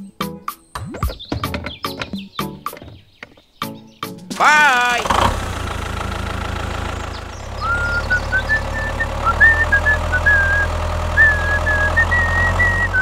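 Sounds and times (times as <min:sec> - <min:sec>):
tractor engine idling: 0:04.4 - 0:13.0
person whistling a tune: 0:07.6 - 0:13.0.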